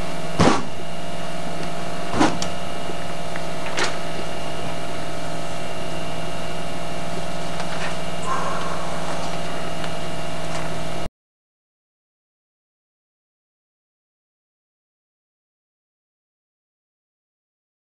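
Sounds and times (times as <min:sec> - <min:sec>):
tape hum and hiss: 0:00.0 - 0:11.1.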